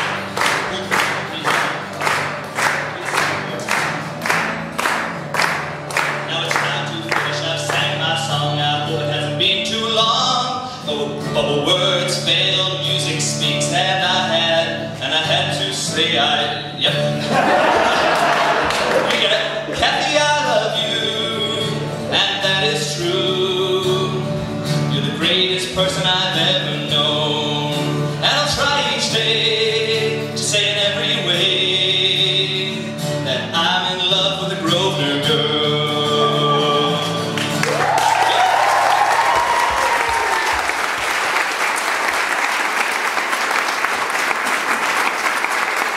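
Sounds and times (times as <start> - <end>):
man singing: 0.0 - 3.9, 6.0 - 17.5, 18.6 - 38.4
applause: 0.0 - 7.9, 17.7 - 19.7, 37.3 - 45.9
strummed acoustic guitar: 0.0 - 38.0
person cheering: 37.6 - 41.1.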